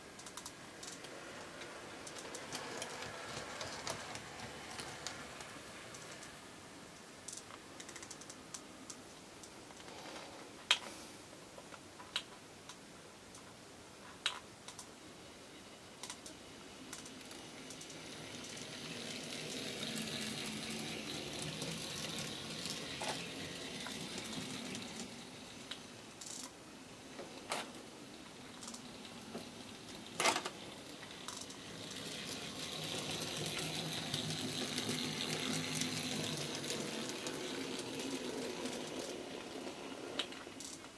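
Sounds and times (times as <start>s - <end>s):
model locomotive motor whir: 0.8s - 6.3s, 16.9s - 26.4s, 28.5s - 40.8s.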